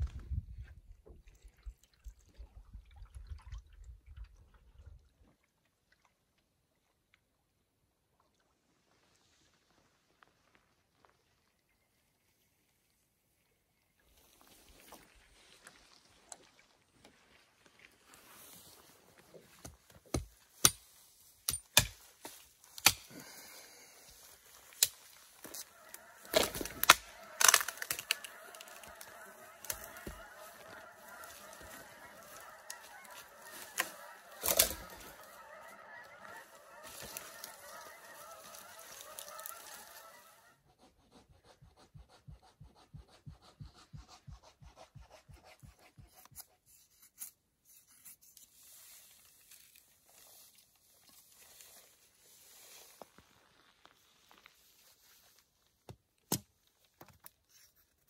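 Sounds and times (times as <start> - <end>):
geese honking: 25.5 - 40.6.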